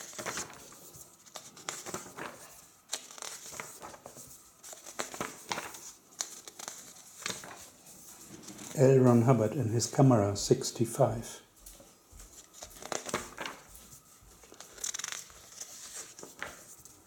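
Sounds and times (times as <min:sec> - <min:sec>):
book pages rustling: 0:00.0 - 0:09.2, 0:11.7 - 0:17.0
page flicks: 0:12.6 - 0:13.7, 0:14.5 - 0:16.6.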